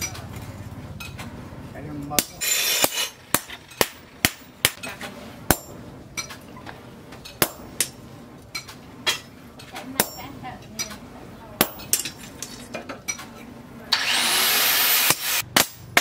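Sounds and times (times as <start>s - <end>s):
hammer striking metal on anvil: 2.2s - 4.9s, 5.5s - 6.3s, 7.4s - 8.0s, 10.0s - 11.0s, 11.6s - 12.3s, 15.0s - 16.0s.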